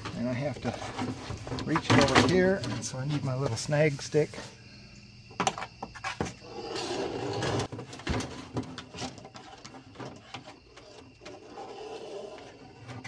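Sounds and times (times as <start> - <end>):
cable scraping through a hole: 6.4 - 7.8, 8.9 - 13.0.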